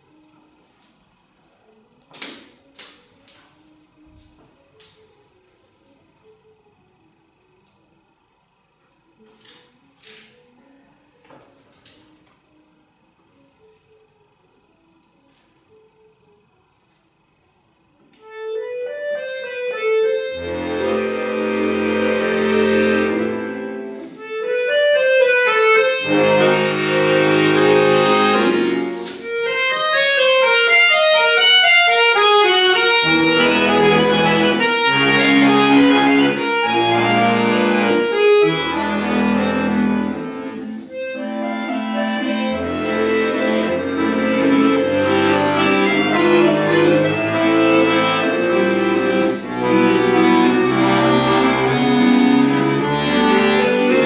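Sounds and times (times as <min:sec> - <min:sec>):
button accordion played solo: 0:18.2 - 0:54.0.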